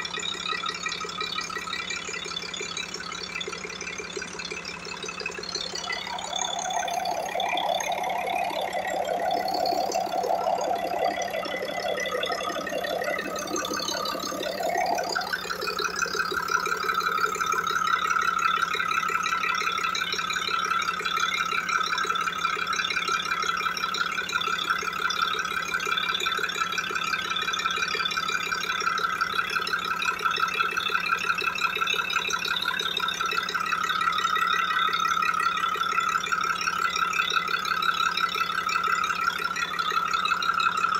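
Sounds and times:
whining tone: 0:01.2 - 0:20.0.

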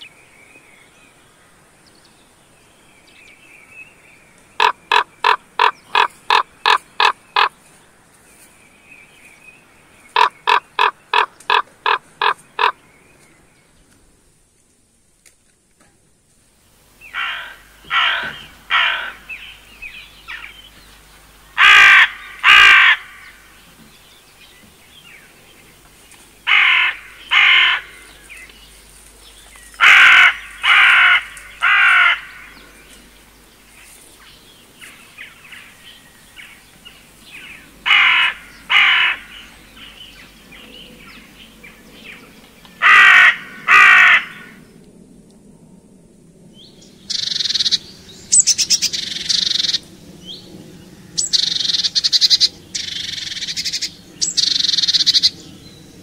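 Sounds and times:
crow cawing: 0:04.6 - 0:07.5, 0:10.2 - 0:12.8, 0:17.1 - 0:19.4, 0:21.6 - 0:23.4, 0:26.4 - 0:28.1, 0:29.8 - 0:32.6, 0:37.8 - 0:39.5, 0:42.8 - 0:44.6.

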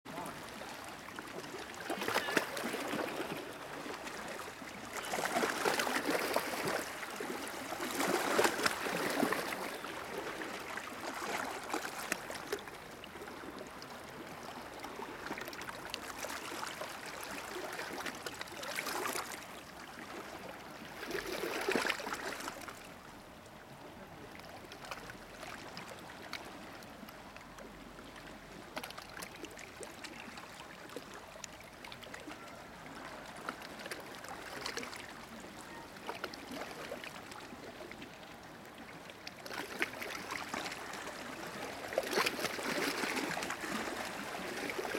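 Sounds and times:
waves lapping against rocks: 0:00.1 - 0:23.2, 0:23.8 - 0:44.9.

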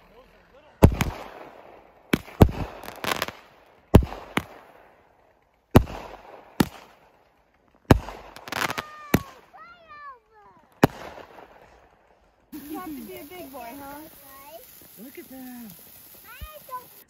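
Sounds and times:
fireworks crackling: 0:00.0 - 0:17.0
fireworks bangs: 0:00.8 - 0:17.0.

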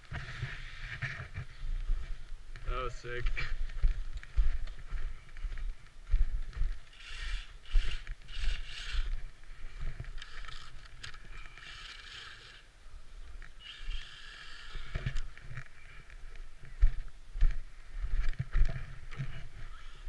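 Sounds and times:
rc truck motor whine: 0:06.9 - 0:09.2, 0:10.1 - 0:12.7, 0:13.6 - 0:15.4.

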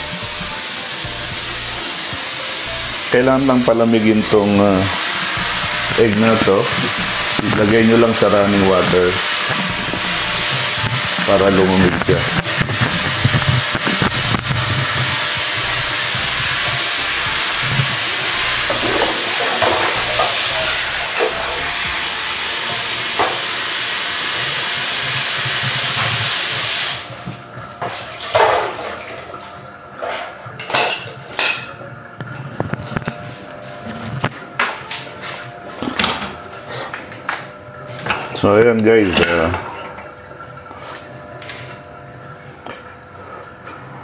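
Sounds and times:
kitchen tap running: 0:00.0 - 0:33.2, 0:35.8 - 0:44.0
dishes clinking: 0:30.0 - 0:31.8.

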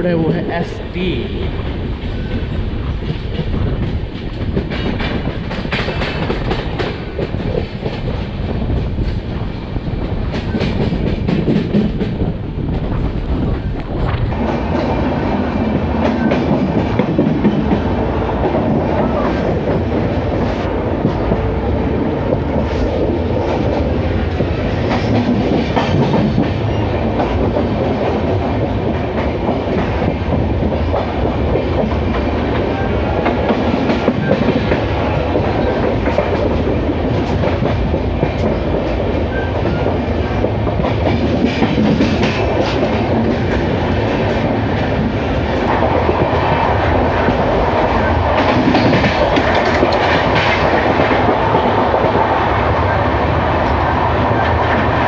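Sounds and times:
train wheels rumbling on rail: 0:00.0 - 0:55.0
clickety-clack of train wheels: 0:01.4 - 0:55.0.

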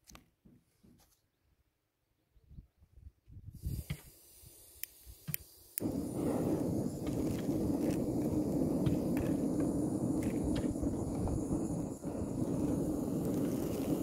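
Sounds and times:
gas burner hissing: 0:03.5 - 0:14.0.

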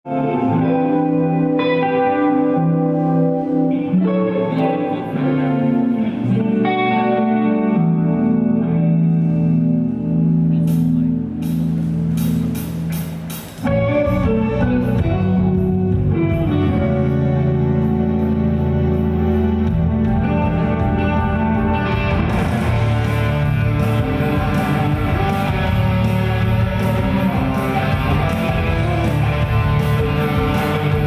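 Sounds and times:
electric guitar melody: 0:00.0 - 0:31.0
backing accompaniment: 0:09.6 - 0:31.0.

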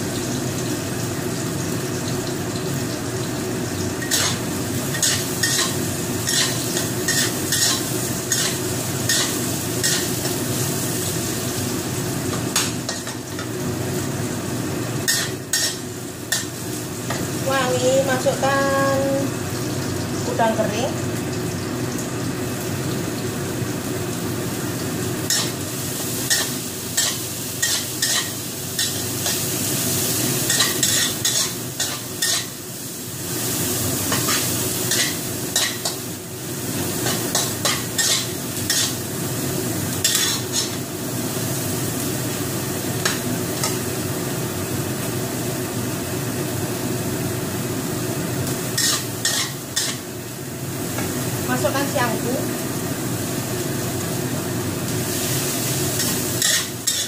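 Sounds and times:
food sizzling in oil: 0:00.0 - 0:57.0.

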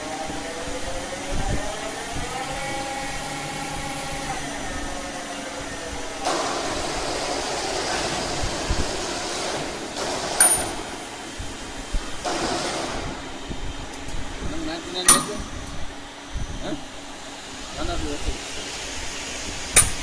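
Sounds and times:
loud hissing rush: 0:02.8 - 0:20.0.

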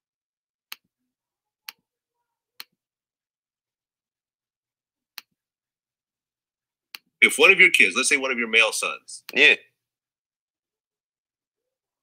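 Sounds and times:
computer mouse clicks: 0:00.7 - 0:00.9.

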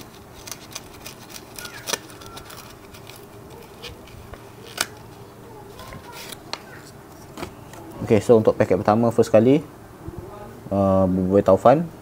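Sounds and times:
paper envelope crackling open: 0:00.0 - 0:07.5.

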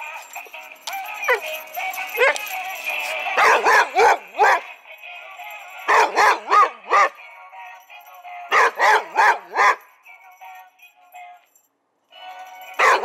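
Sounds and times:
dog barking: 0:03.3 - 0:04.8, 0:05.9 - 0:07.2, 0:08.5 - 0:09.8, 0:12.8 - 0:13.0.

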